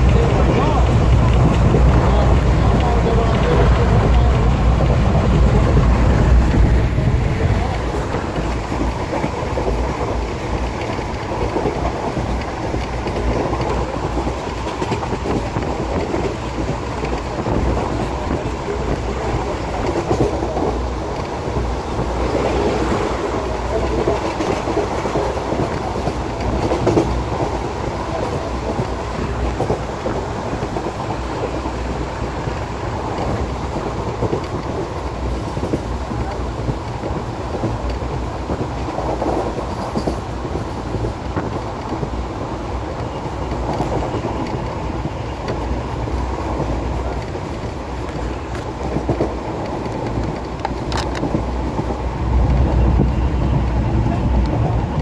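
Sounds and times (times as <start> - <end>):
train wheels rumbling on track: 0.0 - 55.0.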